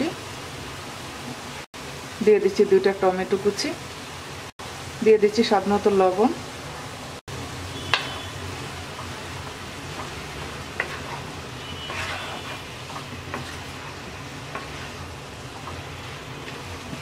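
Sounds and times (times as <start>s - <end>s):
frying sizzle: 0.0s - 17.0s
wooden spatula stirring vegetables: 7.8s - 17.0s.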